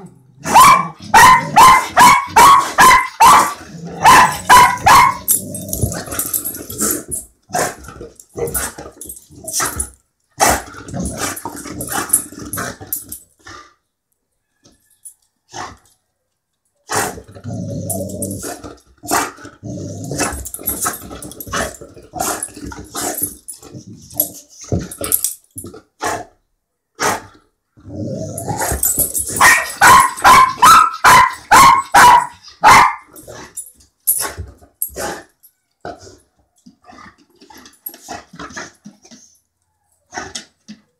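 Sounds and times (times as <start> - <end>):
dog yipping and barking: 0.5 - 5.3, 29.4 - 33.1.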